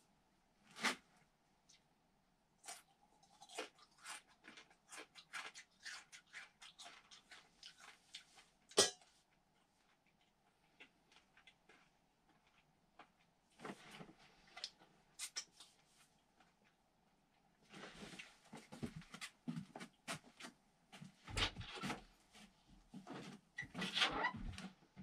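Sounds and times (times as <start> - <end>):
dog crunching bacon: 2.6 - 8.3.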